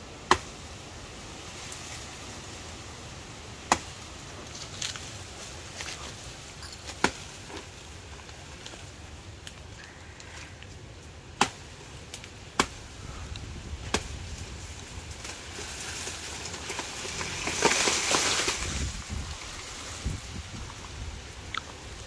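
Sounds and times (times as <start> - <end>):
leaves rustling and crackling: 0.0 - 22.0
sharp strikes into plant trunk: 0.2 - 0.6, 3.6 - 4.1, 6.9 - 7.6, 11.3 - 12.9, 13.8 - 14.4.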